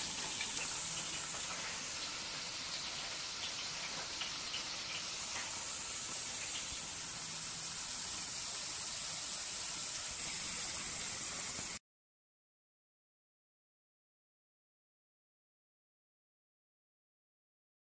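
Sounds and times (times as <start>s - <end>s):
potato slices sizzling in oil: 0.0s - 11.8s.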